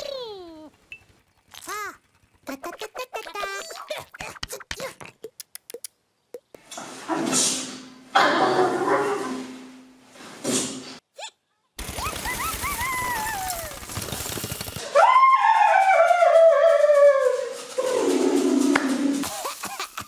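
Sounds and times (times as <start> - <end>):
falling wail: 12.2 - 13.8, 14.8 - 19.2.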